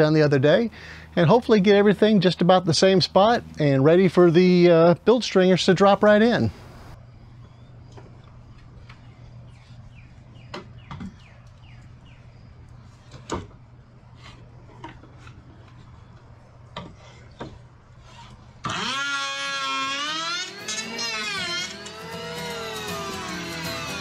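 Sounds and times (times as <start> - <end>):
background music: 20.6 - 24.0.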